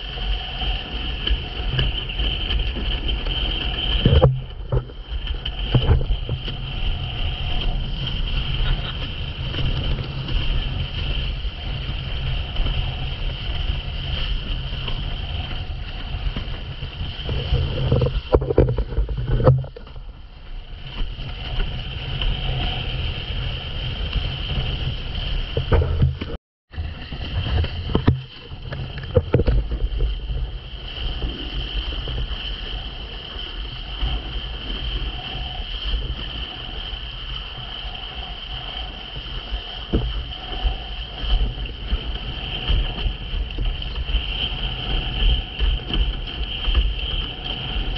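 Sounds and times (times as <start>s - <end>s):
water rushing and splashing: 0.0s - 47.9s
wind buffeting microphone: 0.0s - 47.9s
board thumping on water: 4.0s - 6.7s, 16.2s - 20.1s, 25.5s - 30.5s.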